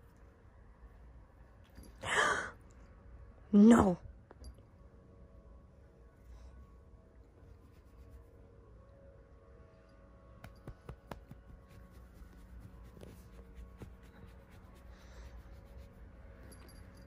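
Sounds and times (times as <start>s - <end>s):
hand rustling cat fur: 7.5s - 8.4s, 10.4s - 17.0s.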